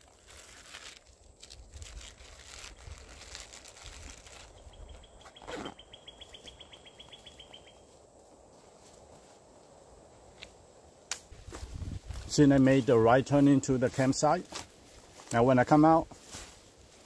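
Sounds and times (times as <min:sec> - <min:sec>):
backpack and clothing rustling: 0:00.0 - 0:06.5, 0:11.4 - 0:17.0.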